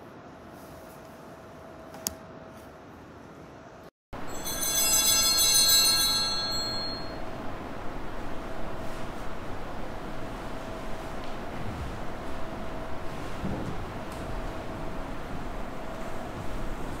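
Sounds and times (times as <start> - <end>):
faint steady hum: 0.0 - 17.0
bell ringing: 4.2 - 7.8.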